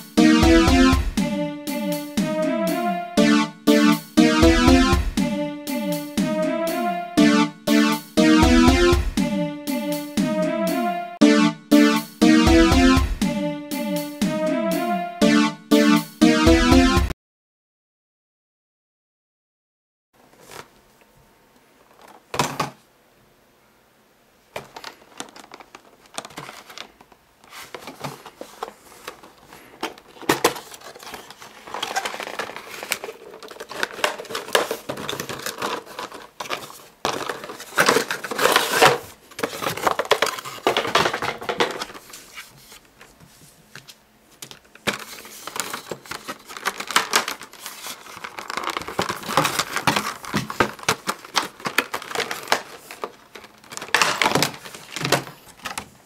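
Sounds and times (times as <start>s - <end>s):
plastic packaging crinkling: 24.6s - 42.8s, 44.4s - 56.0s.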